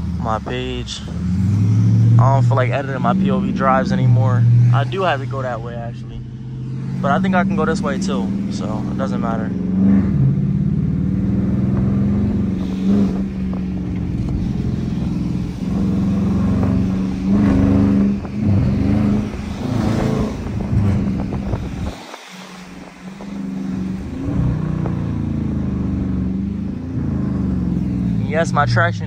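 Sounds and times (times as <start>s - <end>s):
car engine running: 0.0s - 29.0s.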